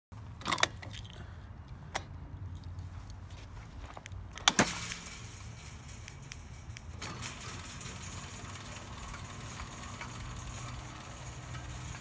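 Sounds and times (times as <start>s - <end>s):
gate opener clunks: 4.4s - 12.0s
electric motor humming: 7.0s - 12.0s.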